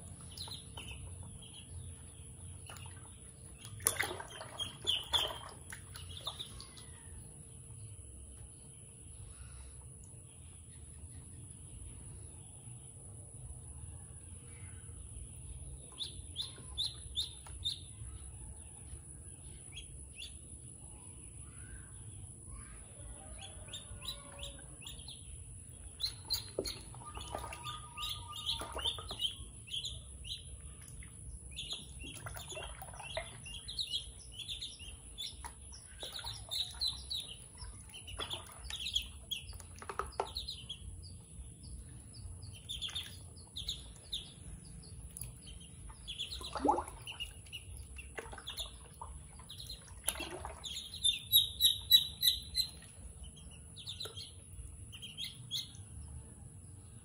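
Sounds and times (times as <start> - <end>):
ducklings peeping: 0.0 - 7.4, 15.0 - 18.3, 22.4 - 56.0.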